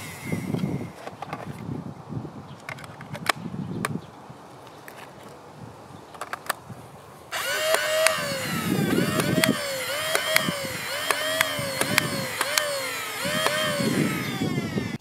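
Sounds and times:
flywheel motors whining: 0.0s - 1.1s, 7.3s - 15.0s
magazine clicking into blaster: 7.4s - 13.7s.

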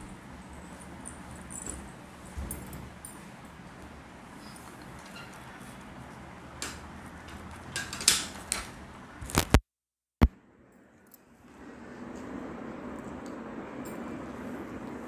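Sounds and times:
low room hum: 10.2s - 15.0s.

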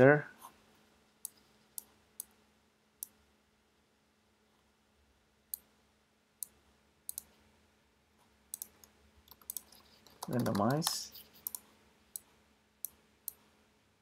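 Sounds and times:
faint steady hum: 0.0s - 14.0s
computer mouse clicks: 1.2s - 2.4s, 6.4s - 7.4s, 8.5s - 13.4s.

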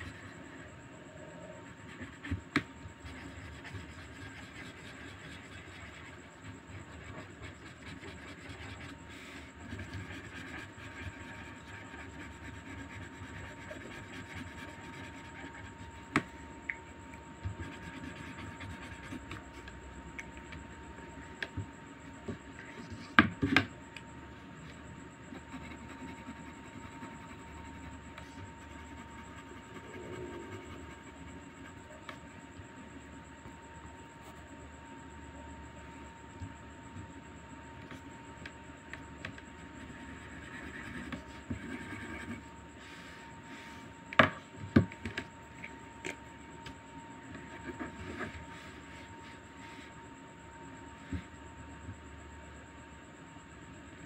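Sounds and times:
steady background hum: 0.0s - 54.0s
marker scribbling on paper: 1.9s - 16.3s.

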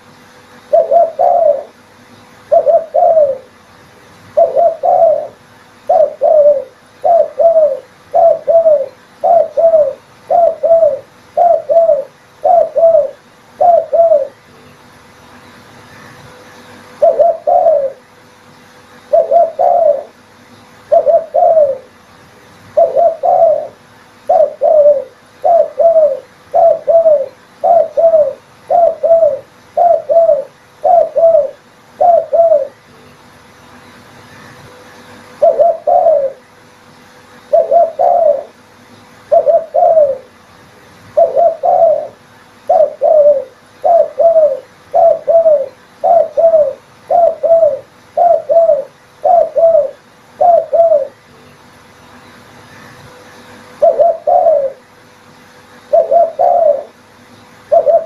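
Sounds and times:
dove cooing: 0.0s - 1.8s, 2.4s - 3.6s, 4.3s - 14.5s, 16.8s - 18.1s, 19.0s - 22.0s, 22.7s - 32.9s, 35.3s - 36.5s, 37.4s - 40.4s, 41.1s - 51.2s, 53.7s - 54.9s, 55.8s - 58.0s.

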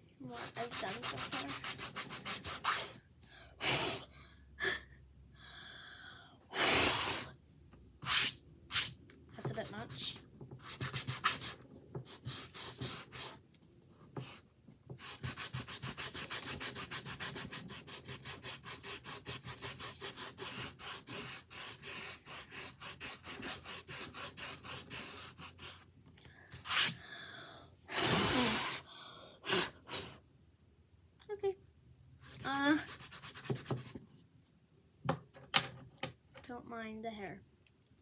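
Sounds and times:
eraser scrubbing on canvas: 0.2s - 3.0s, 15.0s - 25.8s, 26.6s - 27.0s.

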